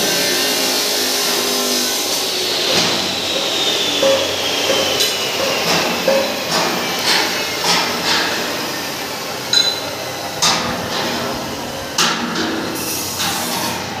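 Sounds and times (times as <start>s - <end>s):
hammer striking steel: 2.4s - 8.7s, 9.5s - 11.2s.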